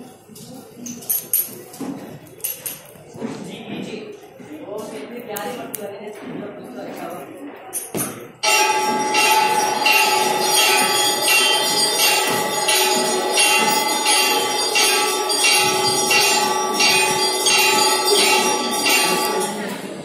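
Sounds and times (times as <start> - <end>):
bell ringing: 8.4 - 20.0.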